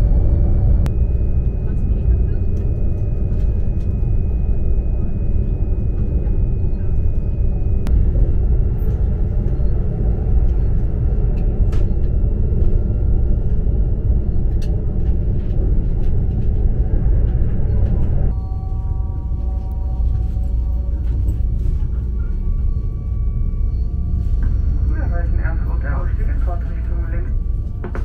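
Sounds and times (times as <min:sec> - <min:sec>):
high whine: 0:00.0 - 0:28.0
train cabin rumble: 0:00.0 - 0:28.0.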